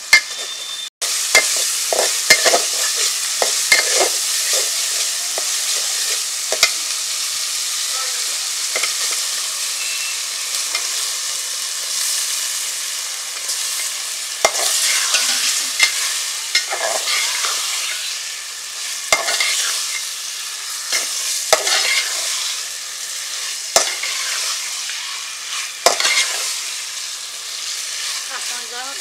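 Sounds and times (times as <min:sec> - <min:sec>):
fish sizzling in a pot: 0:00.0 - 0:29.0
metal spatula scraping a pot: 0:01.4 - 0:04.8, 0:14.5 - 0:18.2, 0:19.1 - 0:20.1, 0:20.7 - 0:22.6, 0:23.3 - 0:26.6.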